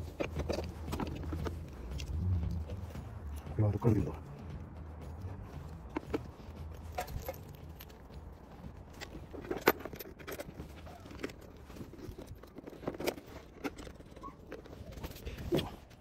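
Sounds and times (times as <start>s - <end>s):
metal tools and parts clinking: 5.1s - 15.8s.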